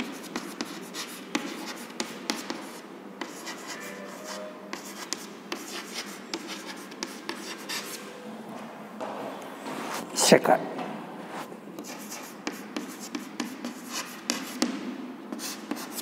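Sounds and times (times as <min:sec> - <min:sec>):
chalk writing on blackboard: 0:00.0 - 0:08.1, 0:11.8 - 0:16.0.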